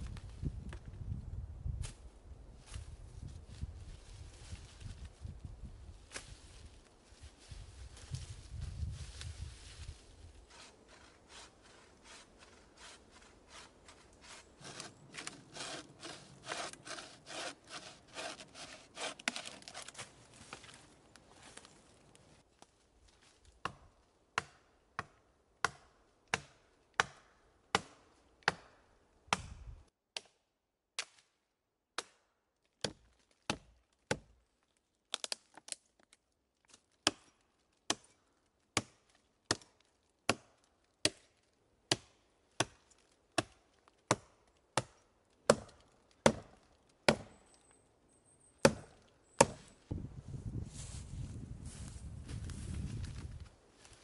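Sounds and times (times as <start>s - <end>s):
axe chopping wood: 23.6s - 29.6s, 32.8s - 34.3s, 40.3s - 41.2s, 41.9s - 42.8s, 43.4s - 47.4s, 48.6s - 49.7s.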